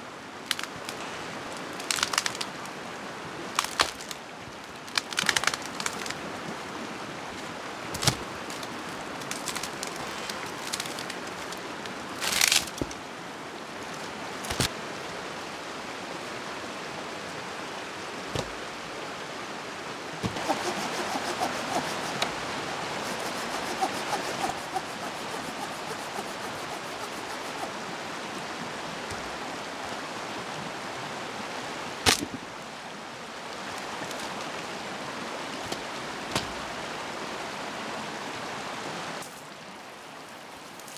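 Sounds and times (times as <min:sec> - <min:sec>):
running water: 0:00.0 - 0:40.9
rustling: 0:08.0 - 0:13.0, 0:20.2 - 0:27.8
fast fine crackling: 0:20.2 - 0:27.9.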